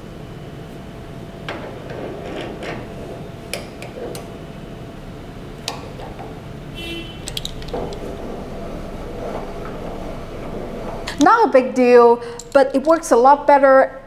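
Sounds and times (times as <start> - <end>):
steady low hum: 0.0 - 14.0
metal clicks and knocks: 7.2 - 11.4, 12.4 - 13.2.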